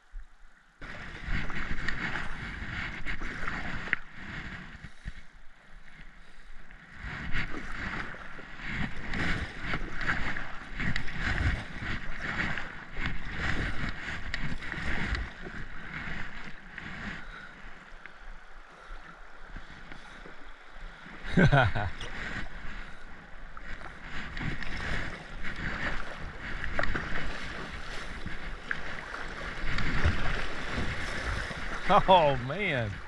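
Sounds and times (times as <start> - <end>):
wind rumble on microphone: 0.0 - 33.0
paddle strokes splashing: 0.8 - 33.0
river water rushing along hull: 0.8 - 33.0.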